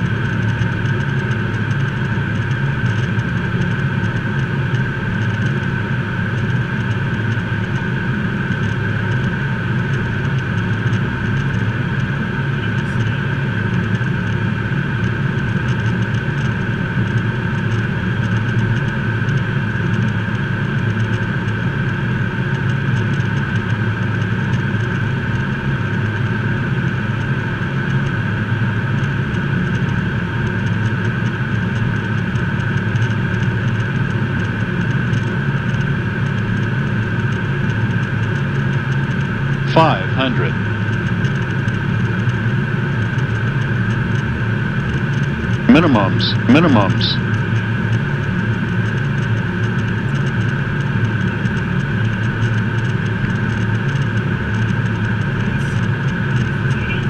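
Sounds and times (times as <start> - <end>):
high turbofan whine: 39.4 - 41.1, 45.5 - 47.8.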